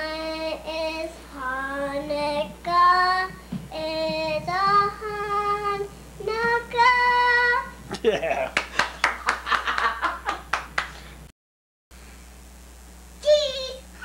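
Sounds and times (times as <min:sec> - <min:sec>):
girl singing unaccompanied: 0:00.0 - 0:07.8.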